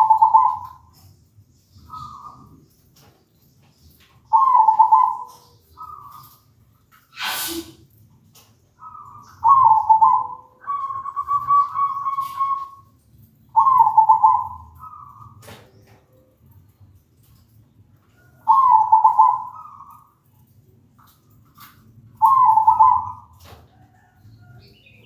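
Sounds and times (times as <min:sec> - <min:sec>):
dove cooing: 0:00.0 - 0:00.9, 0:01.9 - 0:02.6, 0:04.3 - 0:06.4, 0:08.8 - 0:12.9, 0:13.5 - 0:15.6, 0:18.4 - 0:20.2, 0:22.2 - 0:24.2.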